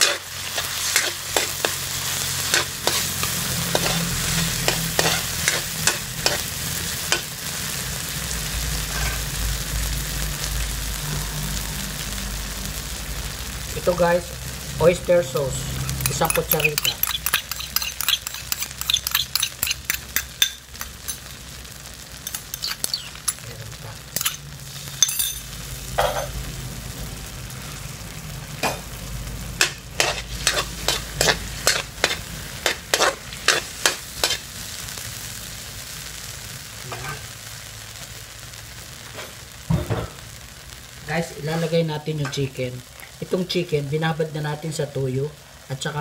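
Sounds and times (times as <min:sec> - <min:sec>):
utensil clacking and scraping pan: 0:00.0 - 0:01.8, 0:02.4 - 0:06.5, 0:15.9 - 0:21.2, 0:22.2 - 0:23.4, 0:24.2 - 0:24.4, 0:29.6 - 0:34.4
onions sizzling in a wok: 0:00.0 - 0:46.0.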